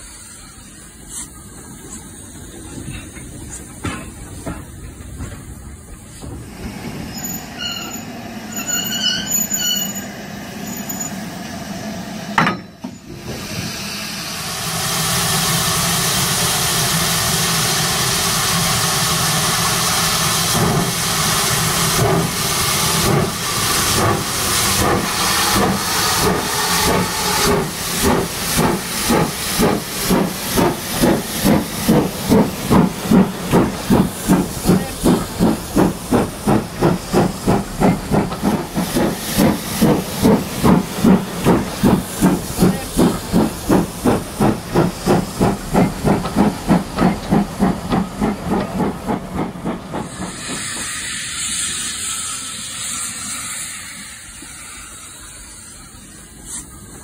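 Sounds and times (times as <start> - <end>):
steam hissing: 0.0 - 12.4, 13.0 - 57.0
steam locomotive exhaust chuffs: 13.0 - 57.0.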